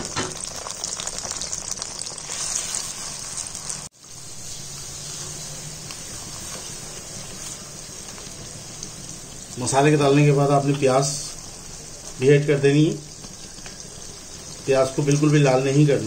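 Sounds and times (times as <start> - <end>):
sauce sizzling in hot oil: 0.0 - 16.0
spatula stirring in pan: 2.2 - 9.5.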